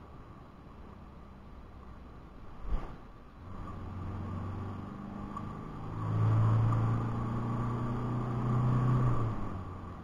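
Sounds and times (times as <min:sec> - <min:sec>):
diesel engine accelerating: 0:03.4 - 0:10.0.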